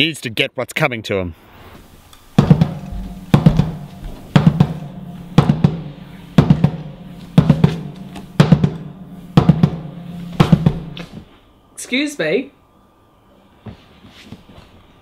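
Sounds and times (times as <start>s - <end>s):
drum beat: 2.3s - 11.2s
low held bass note: 2.4s - 11.2s.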